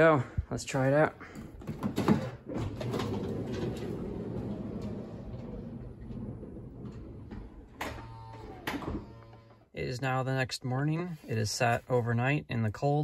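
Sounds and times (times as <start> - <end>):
sliding door motor hum: 2.7 - 9.7.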